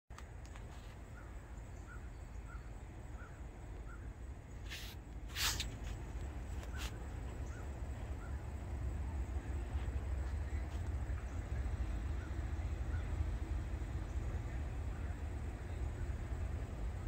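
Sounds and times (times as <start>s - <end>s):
bird chirping: 0.5s - 5.7s, 6.6s - 8.5s.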